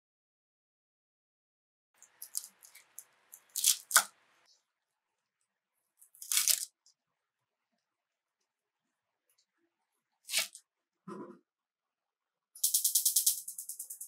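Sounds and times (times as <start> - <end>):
knife slicing spinach on wood: 10.3 - 10.6.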